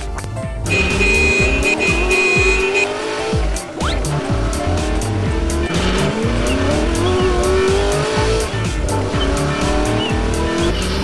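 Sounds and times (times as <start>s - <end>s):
electronic game music: 0.0s - 11.0s
car engine sound effect revving: 0.7s - 11.0s.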